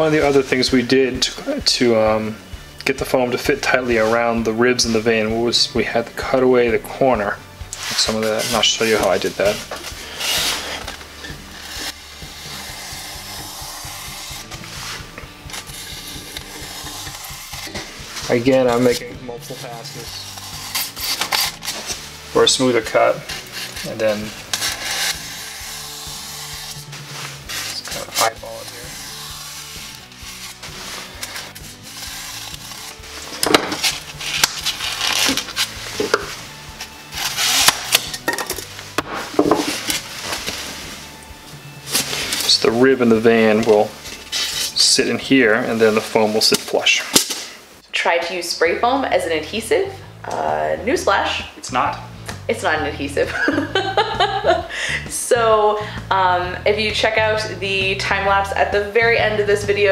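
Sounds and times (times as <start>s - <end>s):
background music with beat: 0.0s - 46.6s, 50.1s - 59.9s
knife cutting foam board: 7.8s - 22.2s, 23.2s - 38.3s.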